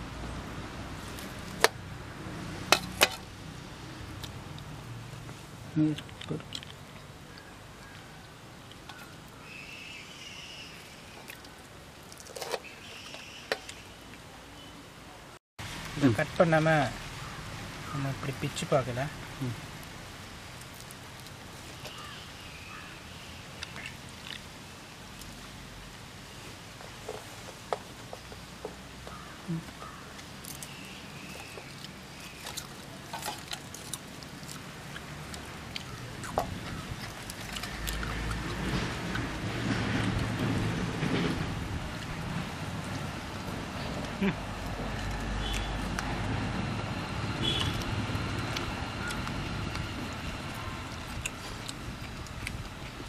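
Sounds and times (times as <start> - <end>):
fried food crackling: 15.6 - 53.0.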